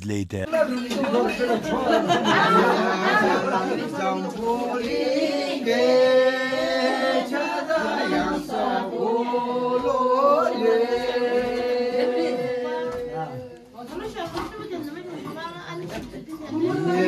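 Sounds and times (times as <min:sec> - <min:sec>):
group singing without instruments: 0:00.7 - 0:13.4.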